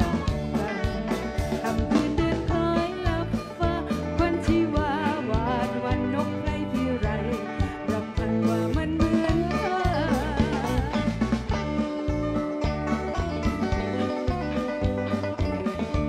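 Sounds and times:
woman singing with vibrato: 0.0 - 11.5, 13.7 - 14.7
live band playing: 0.0 - 16.0.

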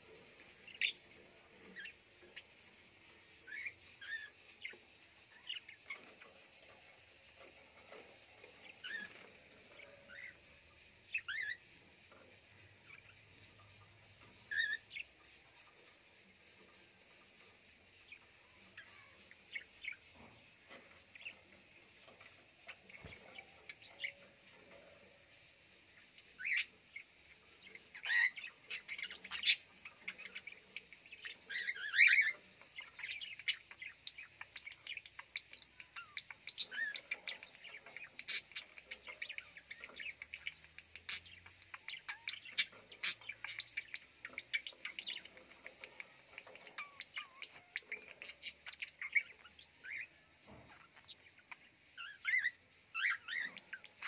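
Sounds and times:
budgerigars chirping: 3.5 - 11.7, 14.5 - 15.2, 26.4 - 54.0.

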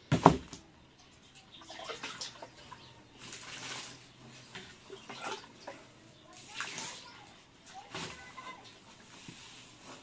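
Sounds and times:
water splashing: 1.6 - 8.4.

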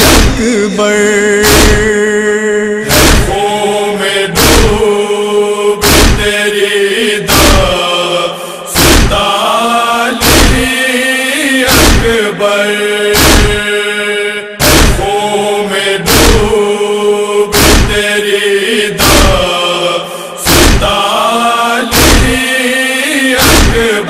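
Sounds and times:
voices chanting on long notes: 0.0 - 24.0
hands striking chest: 1.5 - 1.8, 2.9 - 3.3, 5.8 - 6.2, 8.8 - 9.2, 13.2 - 13.6, 14.6 - 15.0, 17.6 - 18.0, 20.5 - 20.9.

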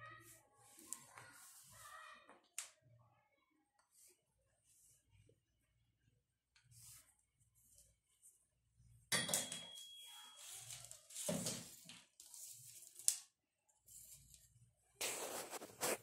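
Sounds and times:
rustling and scraping: 10.4 - 13.0, 15.0 - 16.0.

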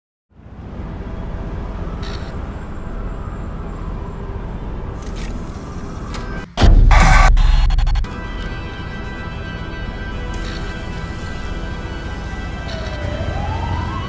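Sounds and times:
loud boom: 6.6 - 8.1
low rumble: 6.6 - 8.1.

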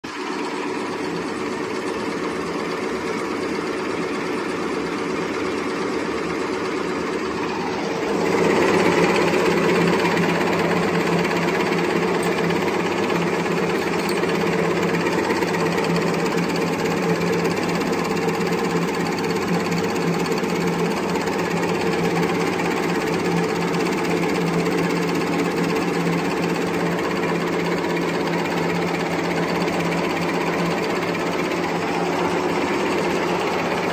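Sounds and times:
paper folding machine clattering: 6.9 - 33.9.

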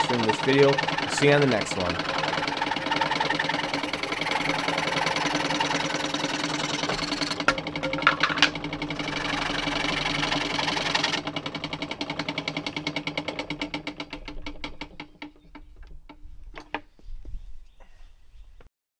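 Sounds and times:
scroll saw blade rasping wood: 0.0 - 7.7, 8.9 - 11.3
saw strokes coasting down: 0.0 - 7.8, 8.7 - 15.3.

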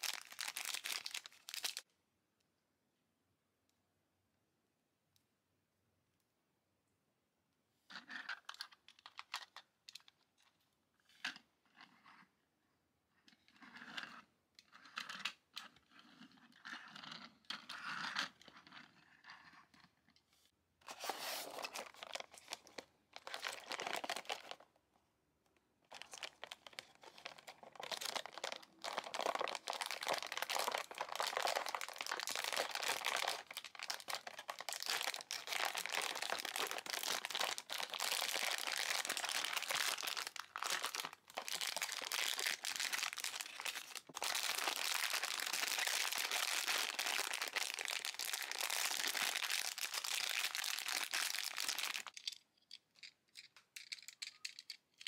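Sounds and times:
plastic packaging crinkling and tearing: 0.0 - 1.8, 20.9 - 24.6, 25.9 - 52.2
plastic toy pieces clicking: 52.1 - 55.0.

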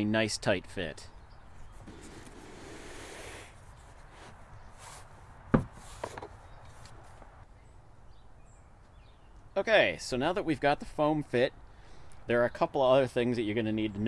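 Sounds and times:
soft rubbing rustle: 1.7 - 7.3.

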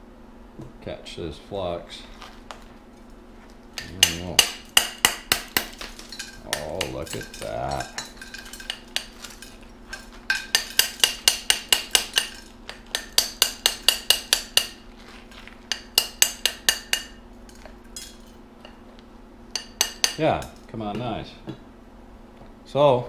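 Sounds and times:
wrench tapping metal bar: 3.8 - 9.1, 9.9 - 14.8.

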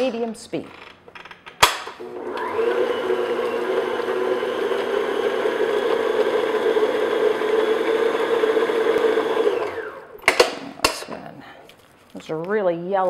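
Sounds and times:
electric stand mixer running: 2.0 - 10.2.

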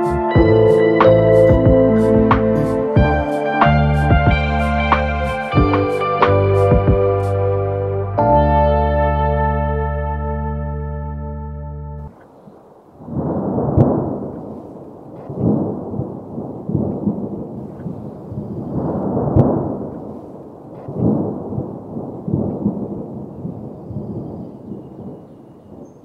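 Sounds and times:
wind buffeting microphone: 12.1 - 26.0.

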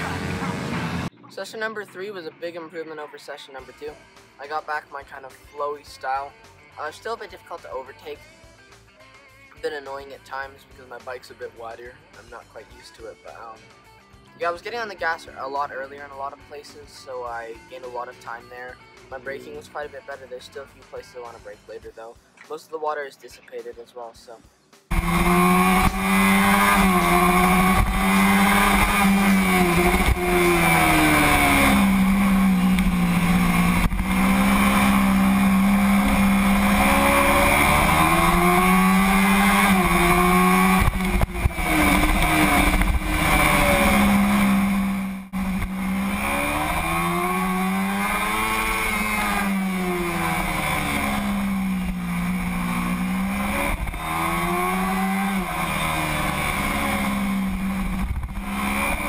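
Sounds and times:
motorcycle engine revving: 0.0 - 1.1, 24.9 - 59.0.

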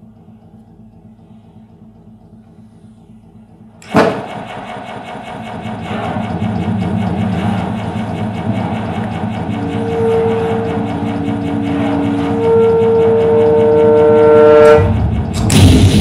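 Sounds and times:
low pulsing electronic texture: 0.0 - 16.0
low rumble: 0.0 - 16.0
loud percussion hit: 3.8 - 16.0.

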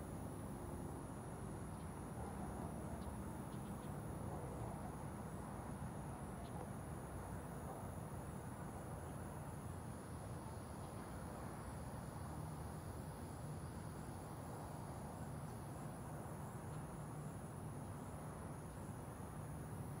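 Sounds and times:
crickets trilling: 0.0 - 20.0.

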